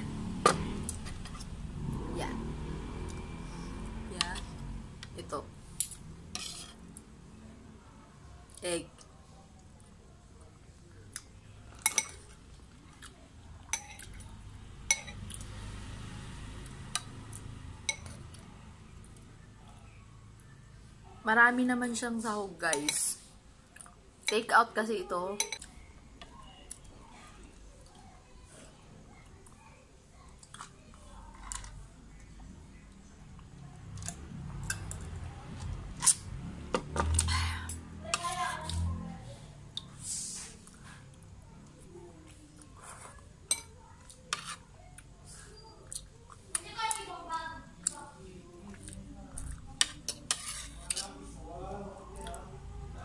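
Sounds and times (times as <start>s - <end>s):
cutlery clinking on ceramic bowl: 13.7s - 14.1s, 14.9s - 15.3s, 17.9s - 18.2s.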